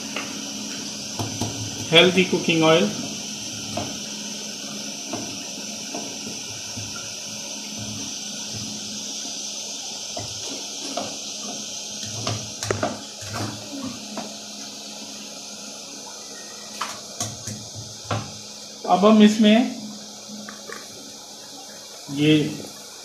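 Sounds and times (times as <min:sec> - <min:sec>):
gas burner flame hissing: 0:00.0 - 0:23.0.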